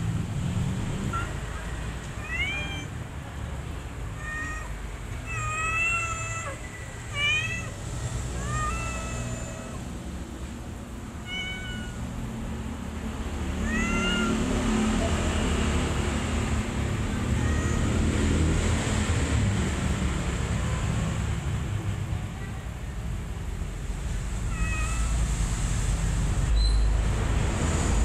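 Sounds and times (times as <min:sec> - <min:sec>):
kitten mewing: 0:01.0 - 0:03.0, 0:04.0 - 0:10.0, 0:11.2 - 0:12.2, 0:13.5 - 0:14.6, 0:16.9 - 0:18.6, 0:24.4 - 0:25.4.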